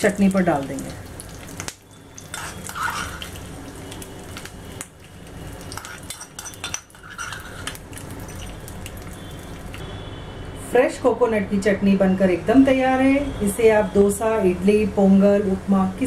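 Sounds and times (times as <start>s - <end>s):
steel pan clinking and scraping: 5.8s - 8.6s.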